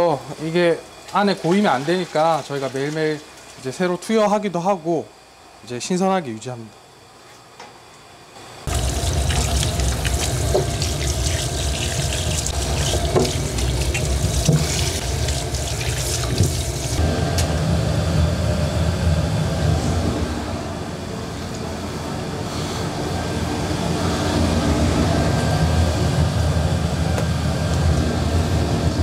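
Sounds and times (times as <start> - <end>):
hands scrubbing and sloshing water: 1.0 - 3.9, 8.7 - 17.0
tap water pouring into sink: 8.7 - 17.0.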